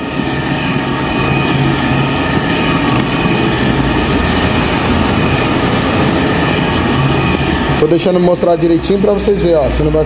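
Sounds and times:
stirrer motor humming: 0:00.0 - 0:10.0.

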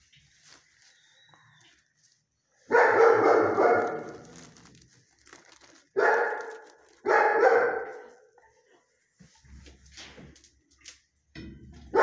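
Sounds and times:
dog barking: 0:02.7 - 0:04.5, 0:05.9 - 0:08.6.

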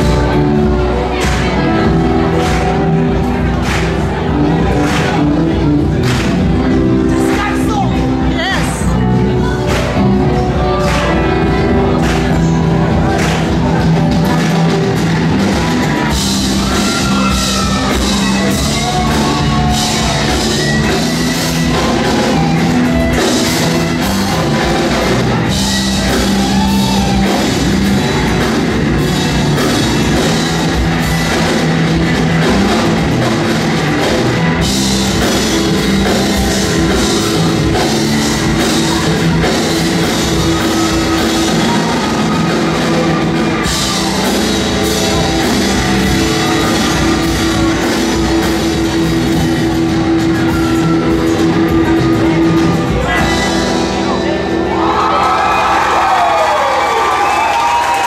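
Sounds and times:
drum kit with cymbals: 0:00.0 - 0:54.6
bass guitar: 0:00.0 - 0:58.0
guitars: 0:00.0 - 0:58.0.

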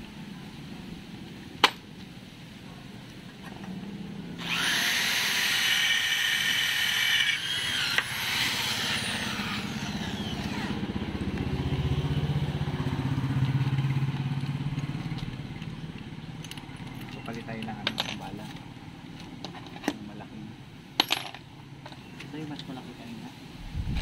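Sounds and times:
electric drill boring into steel: 0:04.4 - 0:10.8
drill motor winding down: 0:04.4 - 0:10.9
low steady rumble: 0:23.5 - 0:24.0.

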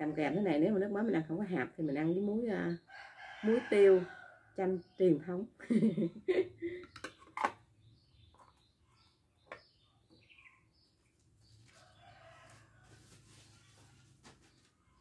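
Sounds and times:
distant rooster crowing: 0:02.9 - 0:04.6, 0:11.7 - 0:14.0.

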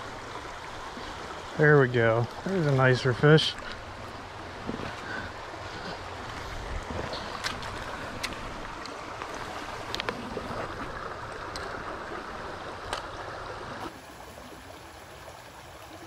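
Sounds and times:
stream running over rocks: 0:00.0 - 0:16.0
splashes and clicks of fish in net: 0:07.0 - 0:10.2.

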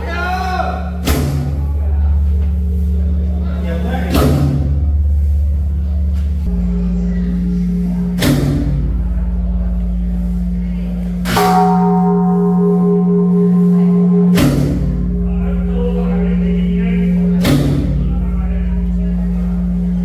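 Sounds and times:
large bell ringing: 0:00.0 - 0:20.0.

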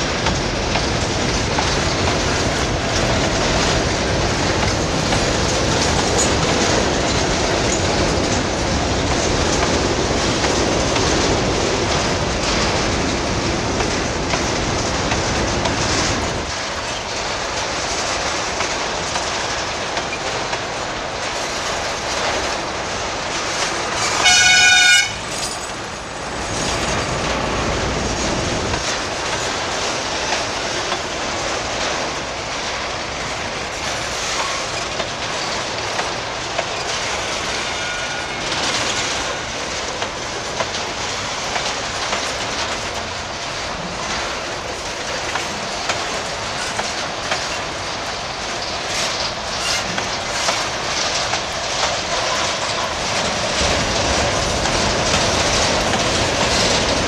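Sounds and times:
freight train wheels rumbling: 0:00.0 - 0:57.0
train horn blast: 0:24.1 - 0:25.3.

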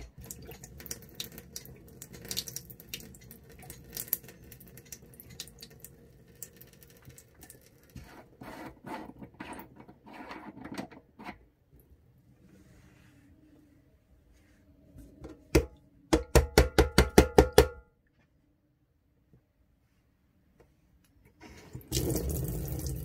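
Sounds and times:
tap water splashing into sink: 0:21.8 - 0:23.0.

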